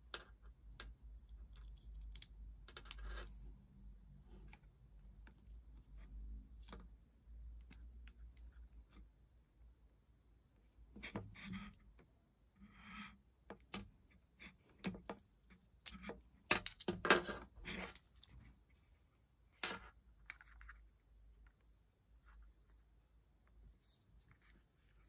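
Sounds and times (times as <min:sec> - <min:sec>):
headset plastic clicks and rustles: 0:00.4 - 0:03.4.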